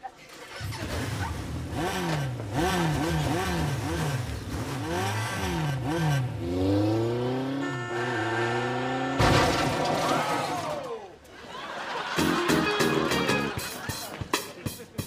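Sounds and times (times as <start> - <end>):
motorcycle engine revving: 0.5 - 9.3.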